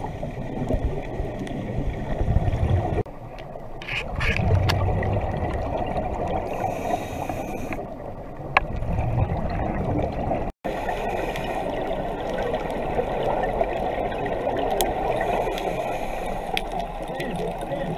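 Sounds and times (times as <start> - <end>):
muffled underwater water noise: 0.0 - 17.9
water gurgling: 0.0 - 17.9
faint clicks: 15.5 - 17.8.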